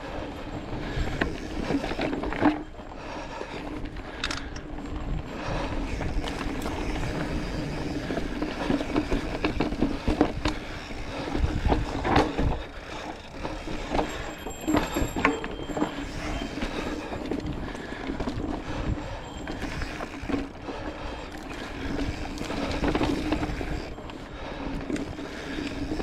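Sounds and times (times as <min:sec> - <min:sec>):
bike chain and frame rattling: 0:00.0 - 0:26.0
bike tyres grinding over dirt: 0:00.0 - 0:26.0.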